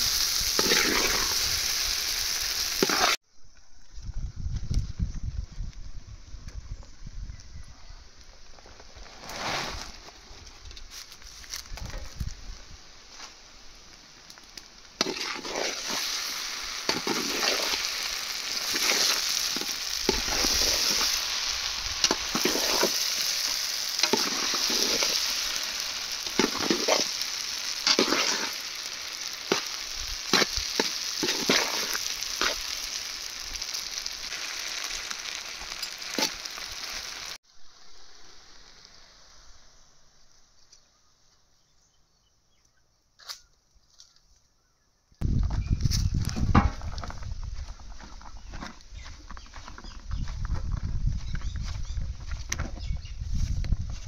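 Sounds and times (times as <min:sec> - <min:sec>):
noodles sizzling in a pan: 0:00.0 - 0:03.2, 0:12.8 - 0:40.0
spatula scraping a pan: 0:15.0 - 0:25.4, 0:26.2 - 0:27.2, 0:27.8 - 0:28.7, 0:29.5 - 0:32.6.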